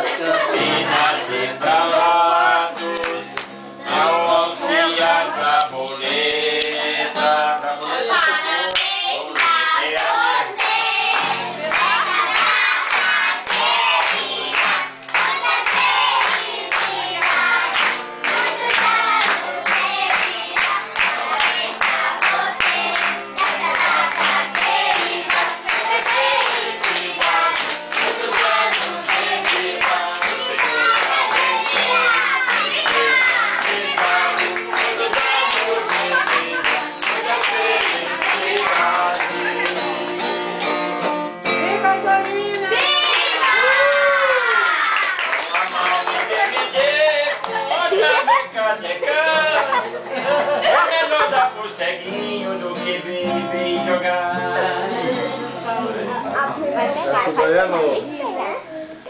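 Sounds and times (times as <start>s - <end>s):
rhythmic clapping: 0.0s - 4.2s, 7.8s - 47.9s
crowd singing birthday song: 0.0s - 59.0s.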